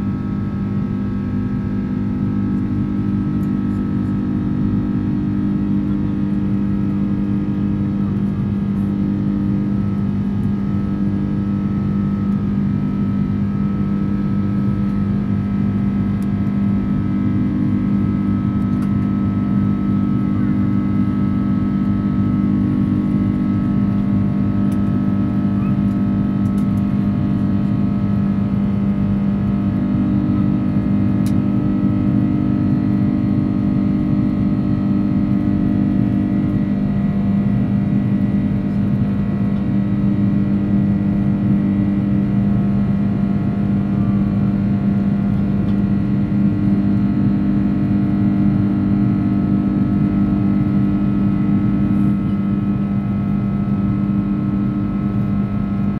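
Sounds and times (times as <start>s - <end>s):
jet engines droning in cabin: 0.0s - 55.9s.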